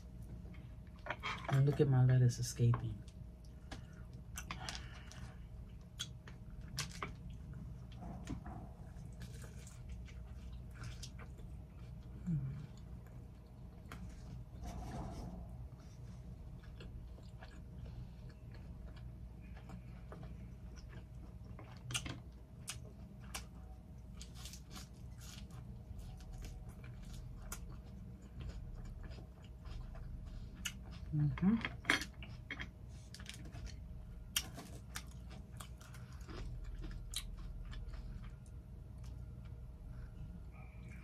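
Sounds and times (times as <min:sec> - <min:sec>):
chewing with wet mouth clicks: 0:02.7 - 0:07.7, 0:16.5 - 0:39.6.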